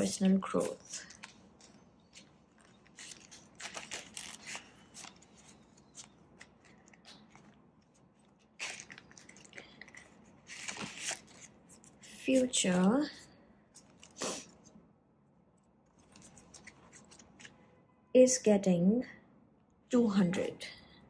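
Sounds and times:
paper and plastic rustling: 0.0 - 12.6.

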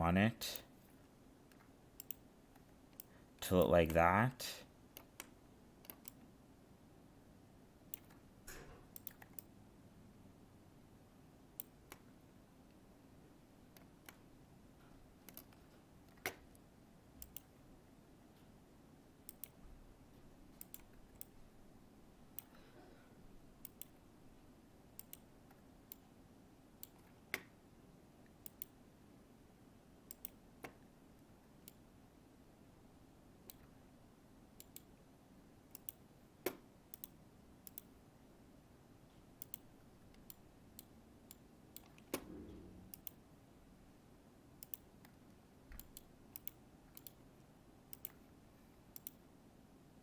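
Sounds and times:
faint steady hum: 0.0 - 50.0
computer mouse clicking: 1.5 - 3.1, 4.9 - 6.3, 7.9 - 8.2, 8.9 - 9.5, 11.6 - 12.1, 13.7 - 14.3, 15.2 - 16.6, 17.2 - 17.5, 19.3 - 19.6, 20.5 - 21.4, 22.3 - 22.5, 23.6 - 24.0, 25.0 - 26.0, 26.8 - 27.6, 28.4 - 28.8, 30.1 - 30.8, 31.6 - 31.8, 33.4 - 33.7, 34.6 - 34.9, 35.7 - 37.9, 39.4 - 42.3, 42.9 - 43.2, 44.6 - 47.2, 47.9 - 48.2, 48.9 - 49.2.

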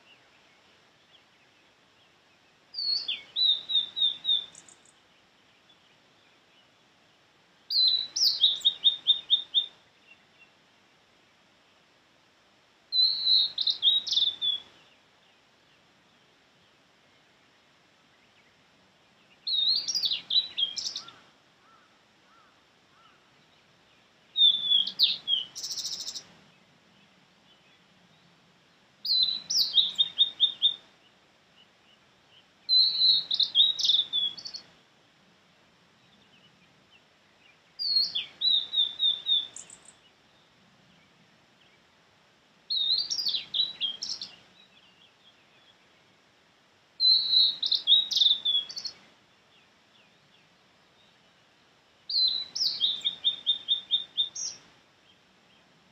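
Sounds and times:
bird singing high whistles: 2.8 - 4.7, 7.7 - 9.7, 12.9 - 14.7, 24.4 - 26.2, 29.0 - 30.8, 32.7 - 34.6, 37.8 - 39.8, 42.7 - 44.3, 47.0 - 49.0, 52.1 - 54.6.

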